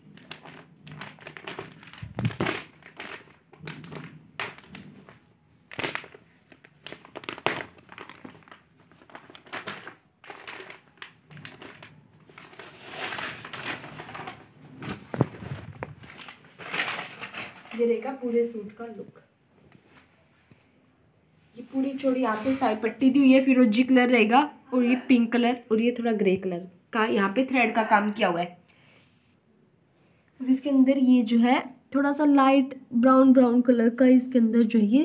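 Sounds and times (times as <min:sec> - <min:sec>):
cloth and plastic rustling: 0:00.0 - 0:23.6, 0:34.1 - 0:35.0.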